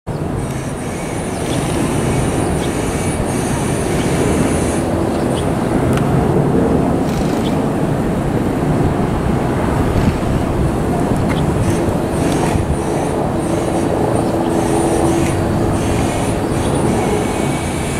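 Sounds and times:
thin high whine: 0.1s - 6.0s, 9.6s - 17.9s
train wheels rumbling on rails: 0.2s - 17.9s.

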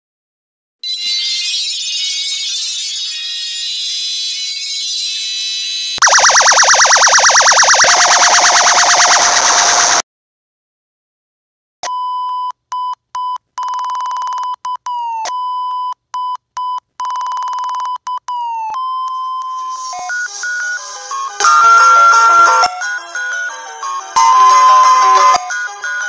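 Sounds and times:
synthesized melody: 2.2s - 10.0s, 19.6s - 23.4s
test tone beep: 5.5s - 9.8s.

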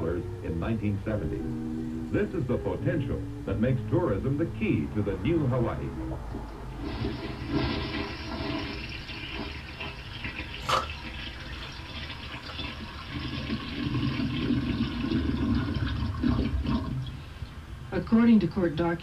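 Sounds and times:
toilet flushing: 5.0s - 17.7s.

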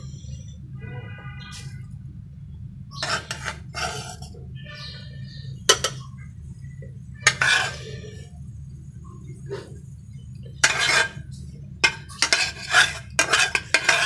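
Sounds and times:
metal spatula scraping pan: 3.0s - 6.0s, 7.2s - 8.3s, 10.6s - 14.0s.

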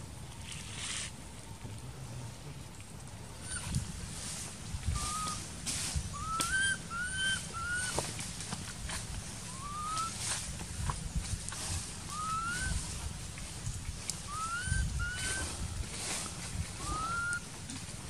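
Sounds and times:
baby monkey high coos: 4.9s - 5.4s, 6.1s - 8.0s, 9.5s - 10.2s, 12.1s - 12.8s, 14.2s - 15.5s, 16.7s - 17.5s
soft low rustling: 7.8s - 18.0s.

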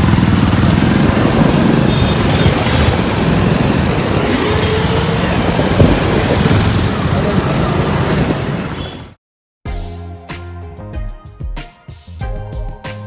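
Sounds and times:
motorbike engine and road noise: 0.0s - 9.2s.

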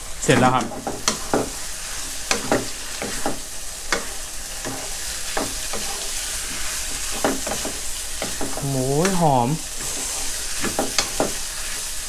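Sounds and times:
food sizzling in oil: 0.0s - 12.0s
spatula scraping a wok: 0.7s - 8.6s, 9.7s - 12.0s.

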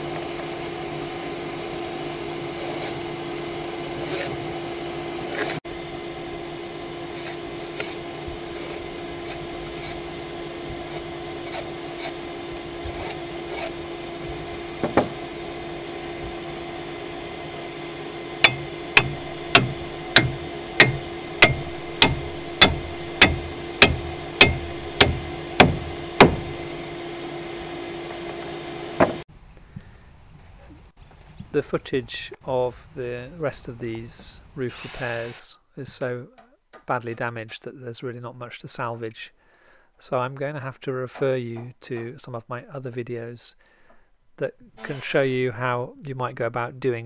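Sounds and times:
machine humming: 0.0s - 29.2s
hammer blows on wooden peg: 18.4s - 26.7s.

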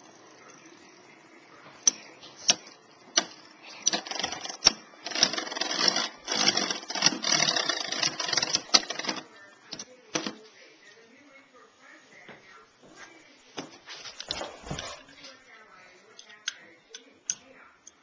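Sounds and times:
spinning tops whirring: 1.8s - 9.4s.

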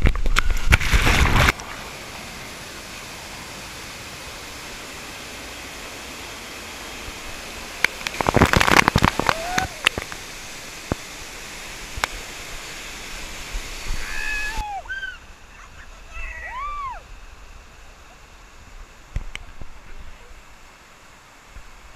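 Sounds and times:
waterfall pouring: 0.0s - 18.0s
stream rushing over rock: 0.0s - 21.9s
people whooping and shrieking: 9.2s - 10.0s, 14.0s - 17.1s.

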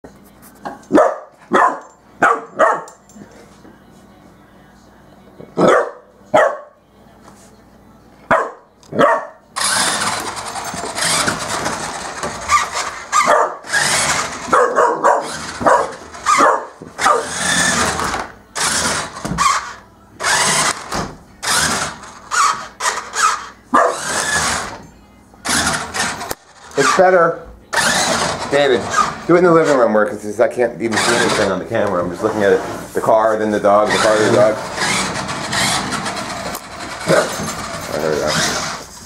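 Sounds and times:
puppy barking: 0.9s - 3.0s, 5.6s - 6.8s, 8.3s - 9.4s, 12.7s - 13.8s, 14.4s - 17.5s, 23.7s - 24.2s
toy car electric motor whirring: 9.6s - 14.6s, 15.2s - 24.8s, 25.4s - 27.1s, 27.7s - 30.0s, 30.8s - 32.8s, 33.7s - 39.0s.

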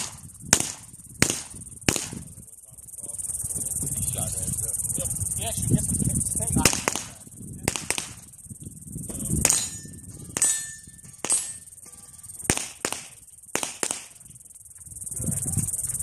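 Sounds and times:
gunshots with echo: 0.0s - 2.3s, 6.6s - 8.3s, 9.4s - 11.6s, 12.5s - 14.2s
insects buzzing: 0.0s - 16.0s.

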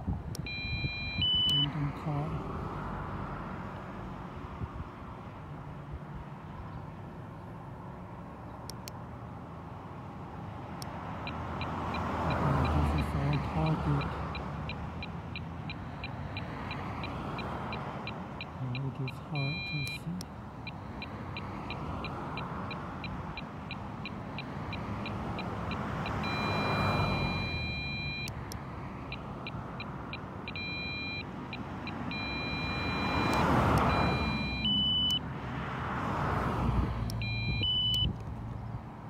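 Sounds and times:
passing cars: 0.0s - 39.0s
speed gun beeping: 32.1s - 35.2s.

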